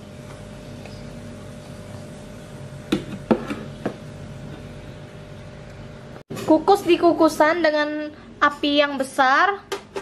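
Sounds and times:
faint steady hum: 0.0 - 6.2.

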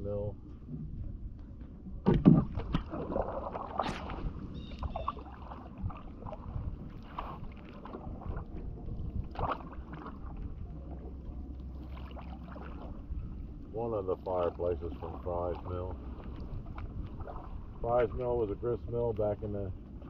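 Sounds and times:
low steady rumble: 0.0 - 20.0
paddle knocks: 2.0 - 4.2
paddle splashing in water: 2.0 - 13.2, 14.2 - 18.3.

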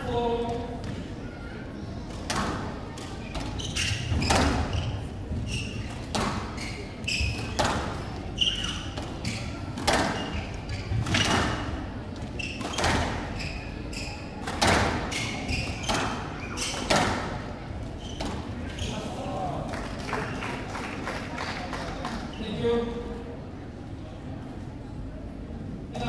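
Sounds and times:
squash ball striking rackets and walls: 2.1 - 11.7, 12.3 - 13.4, 14.4 - 17.4
shoes squeaking on court floor: 2.1 - 19.2.

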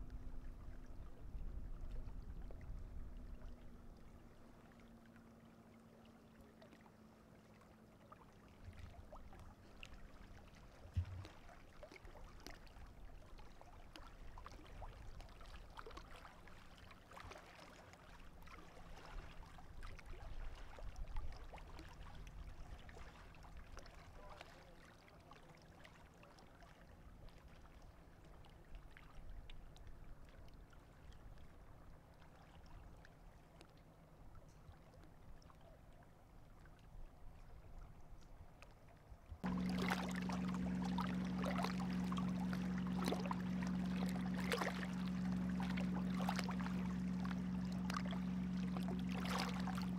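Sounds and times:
water splashes and trickles: 0.0 - 49.9
low rumble: 39.4 - 49.9
small waves lapping: 39.4 - 49.9.

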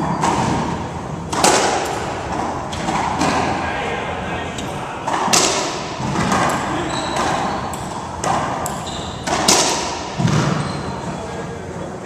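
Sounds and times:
sneaker squeaks on hardwood: 0.0 - 0.6, 6.2 - 11.2
racquetball ball smacks: 1.3 - 3.5, 5.0 - 10.6.

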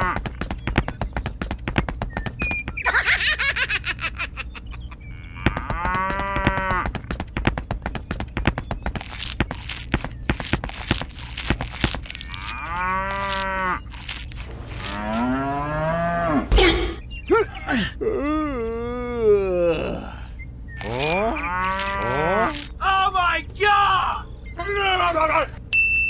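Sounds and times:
cows mooing: 5.1 - 6.9, 11.8 - 16.5, 20.8 - 22.7.

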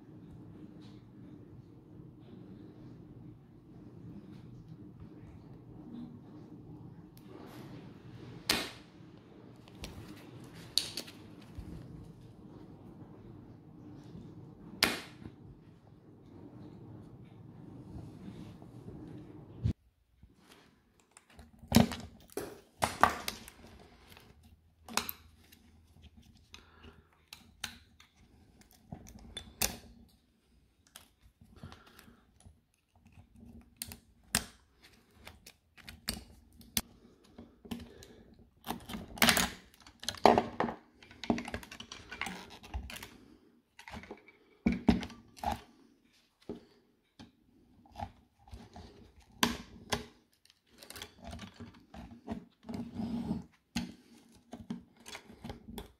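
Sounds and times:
tools prying plastic parts: 38.6 - 43.1.

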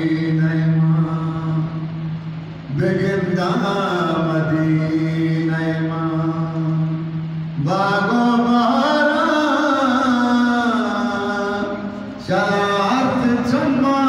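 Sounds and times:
man singing unaccompanied: 0.0 - 2.0, 2.7 - 14.0.

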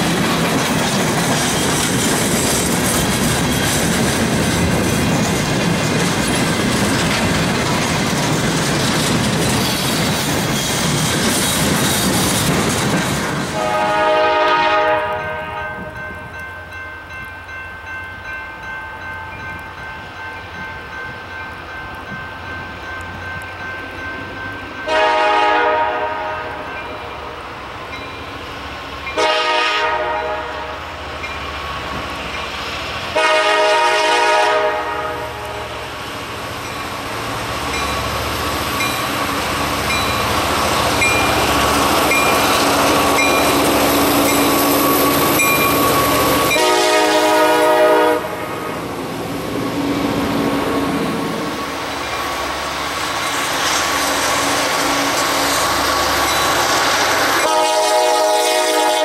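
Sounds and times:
locomotive engines and rolling wheels: 0.0 - 58.0
train horn blasts: 13.5 - 16.0, 24.8 - 27.4, 29.2 - 30.8, 33.2 - 35.9, 46.5 - 48.8, 57.4 - 59.0
crossing bell dinging: 13.6 - 25.5, 26.1 - 28.4, 37.7 - 38.2, 38.8 - 47.2.

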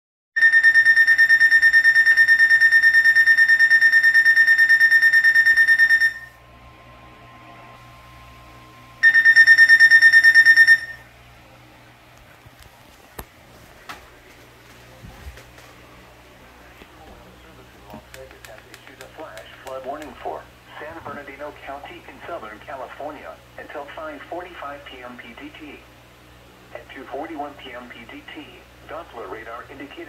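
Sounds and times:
pulsing high-pitched alarm beep: 0.4 - 6.4, 9.0 - 11.1.

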